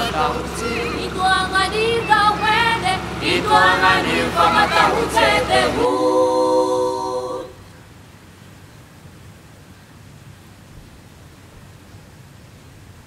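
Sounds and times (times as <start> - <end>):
voices singing in harmony: 0.0 - 7.7.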